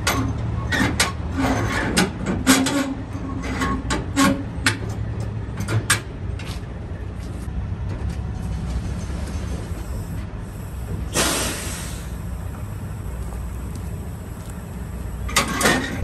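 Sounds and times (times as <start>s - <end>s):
diesel engine running: 4.6s - 16.0s.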